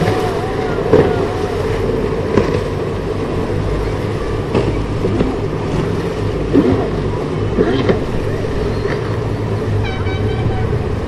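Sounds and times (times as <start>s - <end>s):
large ship rumble and hiss: 0.0s - 11.0s.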